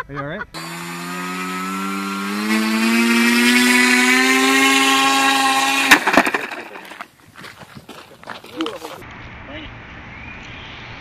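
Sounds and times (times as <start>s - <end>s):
propeller motor whine: 0.6s - 6.9s
sharp crack: 4.8s - 7.1s.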